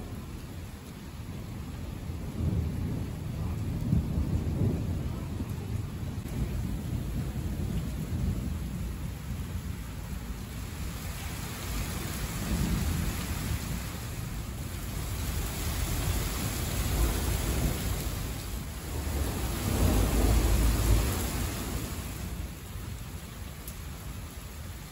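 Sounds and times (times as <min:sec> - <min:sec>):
rain falling on roofs: 0:00.0 - 0:24.9
thunder rumbling: 0:01.5 - 0:24.9.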